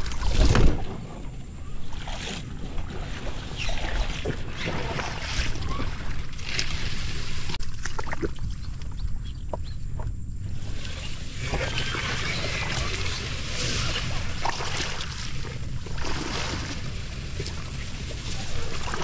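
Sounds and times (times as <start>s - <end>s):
wind rumble on microphone: 0.0s - 19.0s
plants swishing against boat hull: 10.5s - 19.0s.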